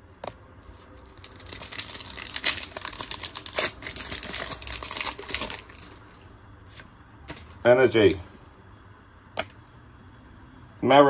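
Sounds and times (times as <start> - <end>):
foil wrapper crinkling: 0.8 - 6.2.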